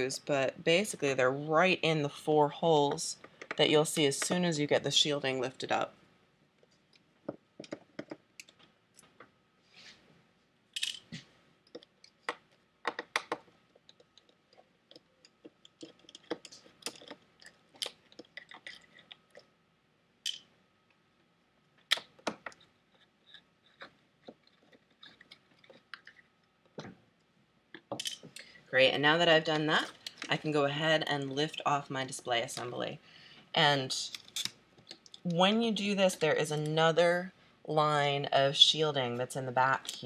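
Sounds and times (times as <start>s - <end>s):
screwdriver clicking and scraping: 10.8s - 19.4s.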